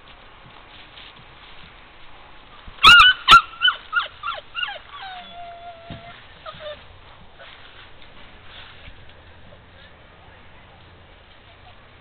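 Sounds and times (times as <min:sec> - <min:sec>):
puppy yipping: 0:02.8 - 0:06.8
puppy whimpering: 0:02.8 - 0:06.9.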